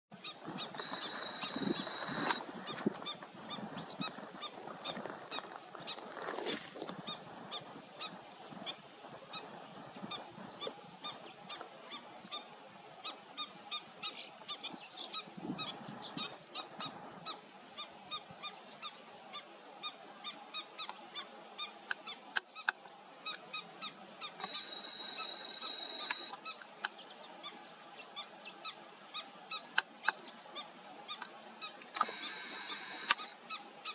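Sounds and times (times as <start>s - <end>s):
water birds honking: 0.2s - 6.0s, 19.8s - 26.6s
thin high whine: 0.6s - 2.5s, 24.4s - 26.4s.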